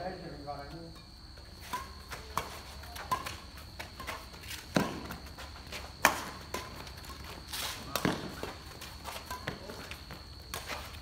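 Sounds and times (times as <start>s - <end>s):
shuttlecock struck by rackets: 1.7s - 5.3s, 7.8s - 8.5s.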